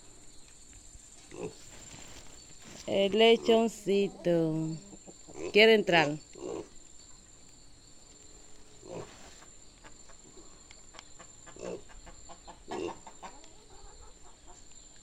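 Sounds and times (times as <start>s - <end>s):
high insect trill: 0.0s - 15.0s
chicken clucking: 2.6s - 5.7s, 8.9s - 14.8s.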